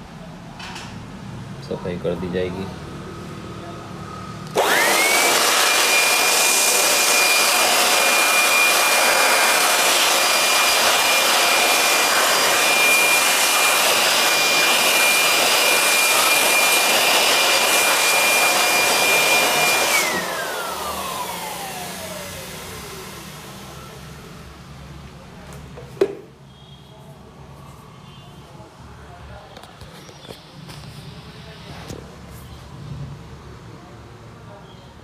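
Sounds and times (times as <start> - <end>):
electric air blower whining: 4.4 - 24.4.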